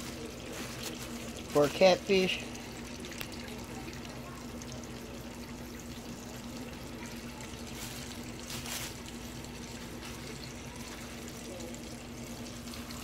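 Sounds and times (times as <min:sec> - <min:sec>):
plastic bowl rustling: 0:00.0 - 0:01.8, 0:07.7 - 0:10.3
fish sizzling in hot oil: 0:05.2 - 0:11.2.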